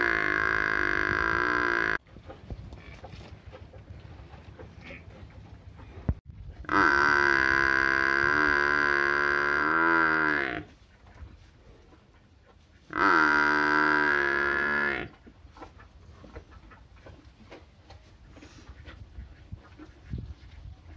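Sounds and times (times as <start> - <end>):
buffalo calf mooing: 0.0 - 2.0, 6.6 - 10.7, 12.9 - 15.1.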